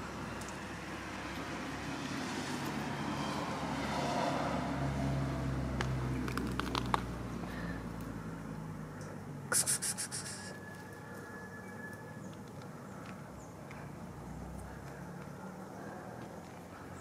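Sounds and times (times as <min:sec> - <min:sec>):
passing vehicle motor: 0:00.7 - 0:08.8.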